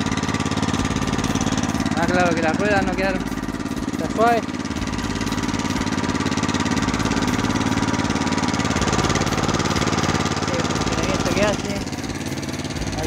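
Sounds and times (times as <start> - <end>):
small petrol engine running: 0.0 - 13.0.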